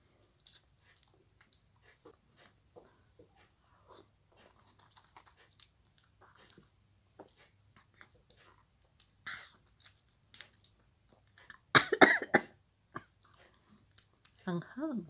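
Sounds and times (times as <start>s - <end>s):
person chewing with wet mouth smacks: 3.2s - 11.7s, 13.0s - 14.4s.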